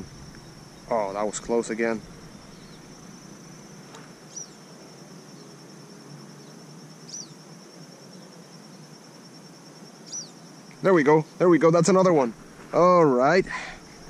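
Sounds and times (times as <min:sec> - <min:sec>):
descending bird chirp: 0:00.0 - 0:03.3, 0:04.3 - 0:04.6, 0:07.1 - 0:07.4, 0:10.0 - 0:10.4
insects trilling: 0:00.0 - 0:14.0.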